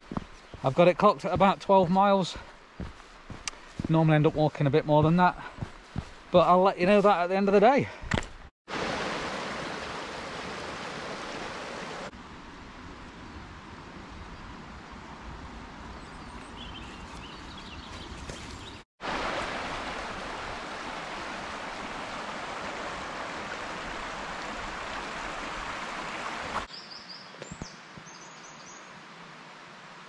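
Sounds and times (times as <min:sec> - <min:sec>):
faint birdsong: 0:00.0 - 0:02.8, 0:15.8 - 0:18.8, 0:26.7 - 0:29.0
stream rushing water: 0:08.7 - 0:12.1, 0:19.0 - 0:26.7, 0:28.9 - 0:30.0.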